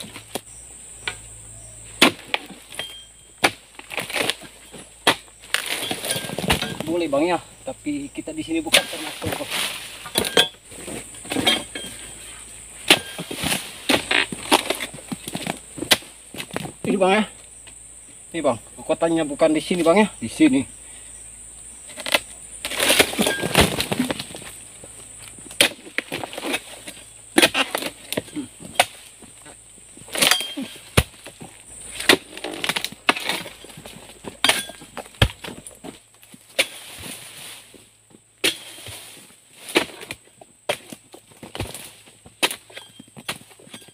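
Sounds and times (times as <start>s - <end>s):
high insect trill: 0.0s - 43.9s
sickle chopping palm fronds: 1.9s - 7.1s, 8.6s - 17.1s, 21.9s - 24.6s, 25.4s - 29.2s, 30.0s - 37.8s, 38.4s - 43.9s
fronds rustling crash: 8.6s - 11.7s, 22.0s - 24.7s.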